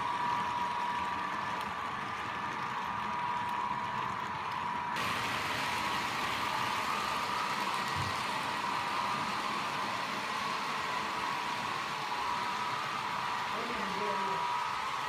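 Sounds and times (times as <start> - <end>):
model train wheels rolling: 0.0 - 15.0
electric motor whine: 4.9 - 15.0
high hiss: 5.0 - 15.0.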